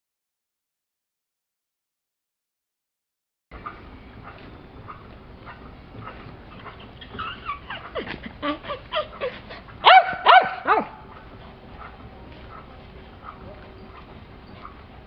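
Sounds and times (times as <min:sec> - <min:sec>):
small dog yipping and whining: 0:09.8 - 0:10.9
small dog high-pitched barks: 0:09.8 - 0:11.0.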